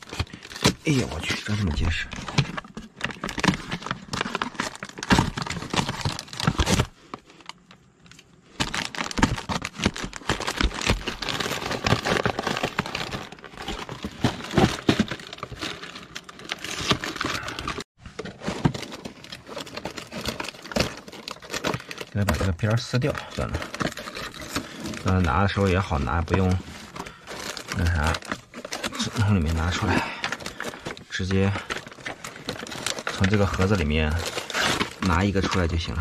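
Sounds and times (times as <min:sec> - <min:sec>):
plastic wrappers crinkling: 0:00.0 - 0:36.0
cardboard box tearing: 0:02.3 - 0:06.9, 0:08.6 - 0:22.4, 0:23.4 - 0:25.4, 0:31.7 - 0:35.6.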